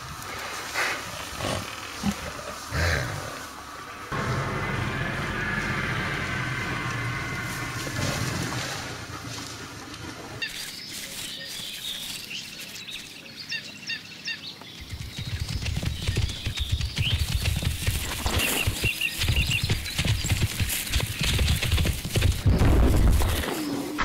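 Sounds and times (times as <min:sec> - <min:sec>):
rushing outdoor ambience: 0:00.0 - 0:24.0
low rumble: 0:04.1 - 0:10.4
small birds chirping: 0:10.4 - 0:24.0.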